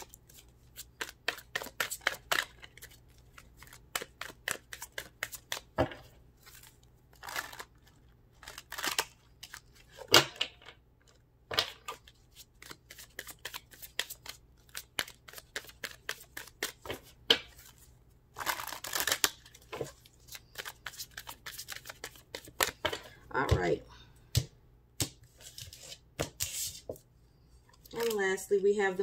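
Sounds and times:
cards being shuffled: 0.0s - 5.8s, 11.7s - 23.1s, 27.8s - 28.2s.

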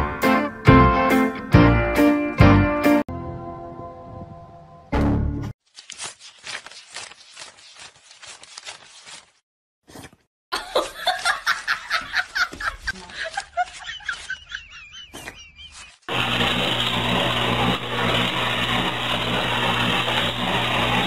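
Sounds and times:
laughter in quick bursts: 10.6s - 16.0s.

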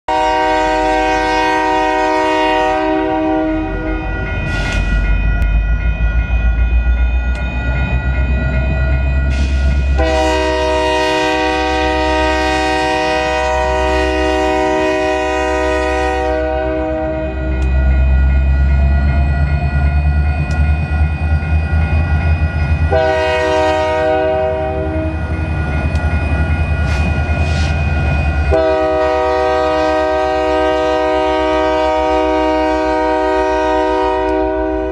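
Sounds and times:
locomotive air horn blasts: 0.1s - 3.9s, 9.4s - 17.6s, 22.9s - 25.2s, 28.5s - 34.9s.

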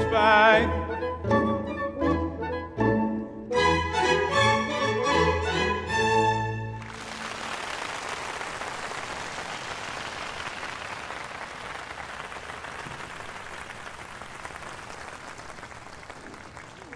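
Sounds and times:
audience applauding: 6.6s - 16.9s.

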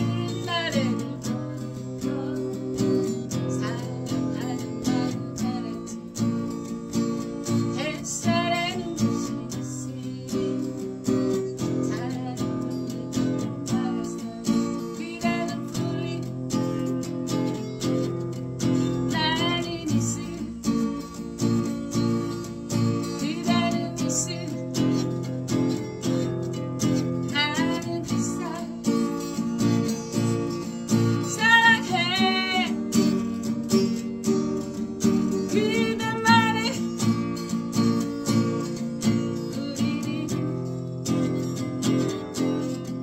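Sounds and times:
woman singing with vibrato: 0.0s - 6.2s, 7.6s - 17.0s, 18.7s - 21.1s, 22.8s - 25.4s, 27.0s - 33.4s, 35.2s - 37.0s, 39.1s - 40.8s
acoustic guitar strumming: 0.0s - 43.0s.

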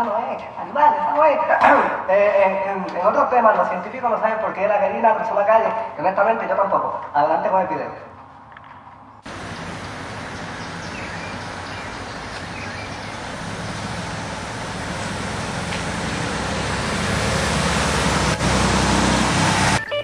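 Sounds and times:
street traffic rumble: 9.2s - 19.9s.

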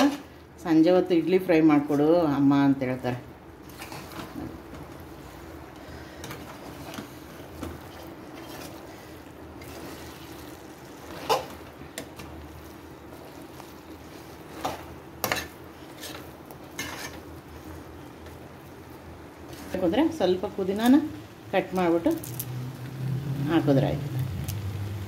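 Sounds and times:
spatula scraping a pan: 3.6s - 18.2s.

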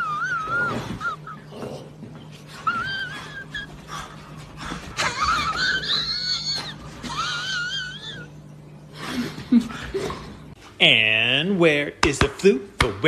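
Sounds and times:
dog whining: 0.0s - 8.5s.

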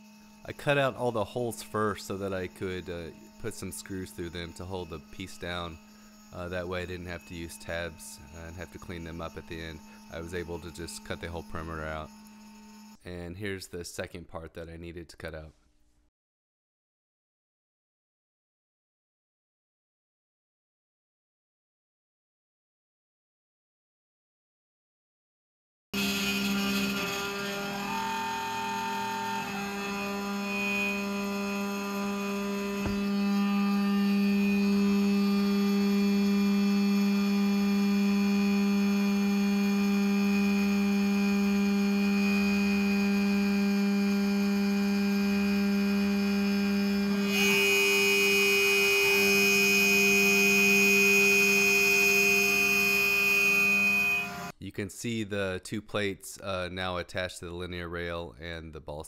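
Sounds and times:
router milling aluminium whine: 0.0s - 13.0s, 26.0s - 54.5s.

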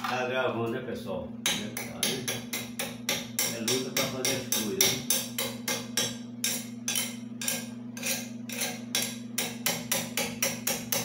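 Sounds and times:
steady low hum: 0.0s - 11.0s
hand tool filing metal: 6.4s - 11.0s.

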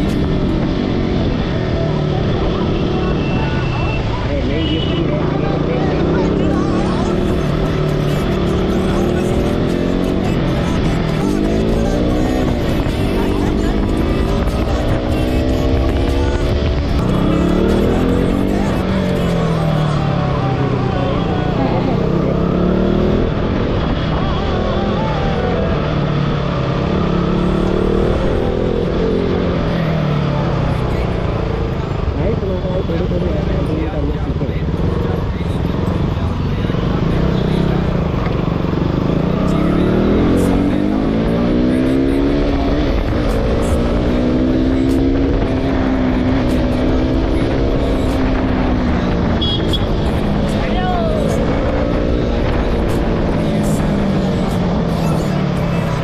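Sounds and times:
motorcycle engine revving: 0.0s - 56.0s
wind and road noise: 0.0s - 56.0s.

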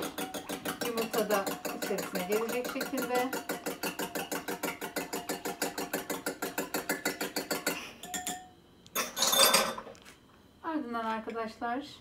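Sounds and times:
fork clinking in ceramic bowl: 6.5s - 9.8s
bowl and fork clatter: 9.0s - 9.8s.

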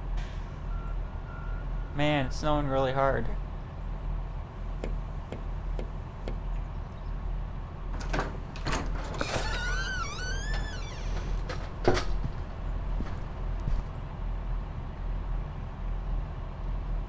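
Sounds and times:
door latch clicks: 8.0s - 12.2s
door hinge creaking: 8.0s - 13.1s.

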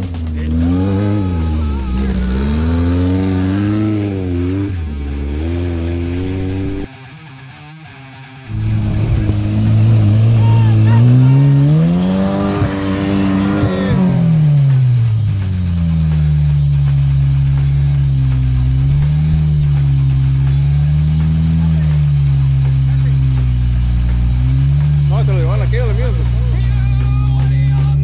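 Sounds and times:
race truck engine revving: 0.0s - 6.9s, 8.5s - 28.0s
music: 0.0s - 28.0s.

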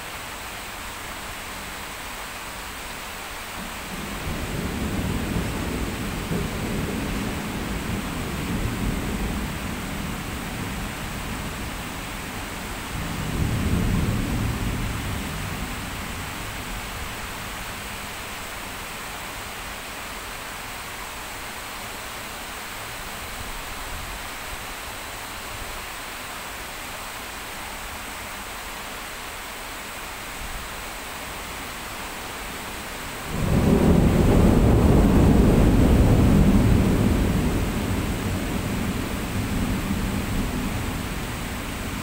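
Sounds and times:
heavy rain: 0.0s - 42.0s
thunder rumble: 33.2s - 42.0s.

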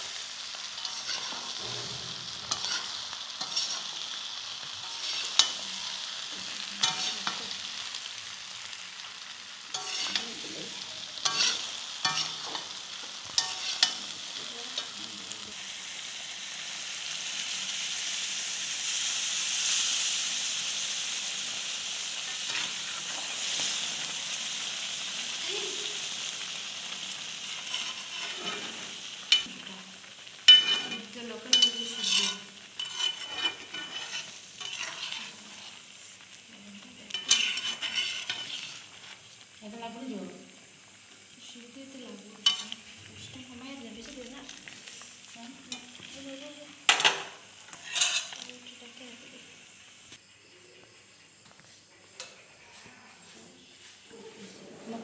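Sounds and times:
water poured into hot pan: 0.0s - 11.6s, 12.6s - 50.2s
food sizzling in oil: 0.0s - 55.0s
metal spoon scraping pan: 0.7s - 7.9s, 9.7s - 15.4s, 27.4s - 29.6s, 30.5s - 35.8s, 37.1s - 39.2s, 42.4s - 42.8s, 46.9s - 48.5s.

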